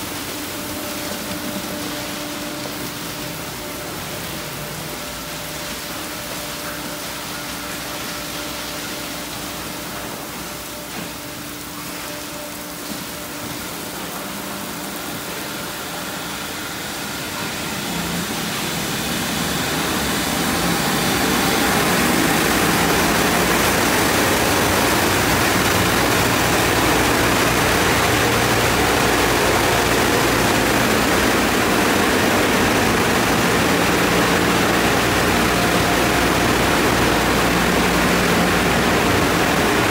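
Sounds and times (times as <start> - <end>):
machine hum: 0.0 - 39.9
air dryer blowers rushing: 17.4 - 39.9.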